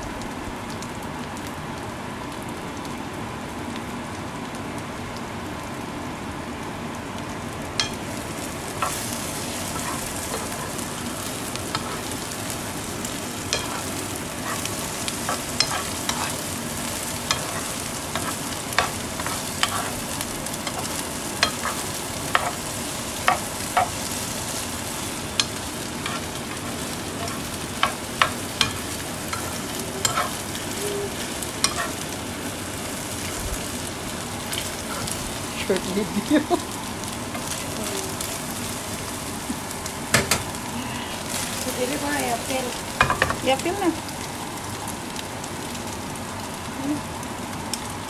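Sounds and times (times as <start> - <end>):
food sizzling in a frying pan: 0.0 - 48.0
metal spoon clinking on pan: 15.3 - 16.4, 27.2 - 30.4, 31.6 - 32.0.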